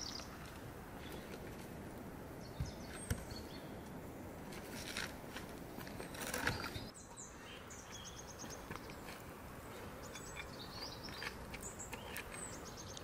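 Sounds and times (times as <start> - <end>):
small birds chirping: 0.0 - 1.5, 2.4 - 4.0, 5.9 - 13.0.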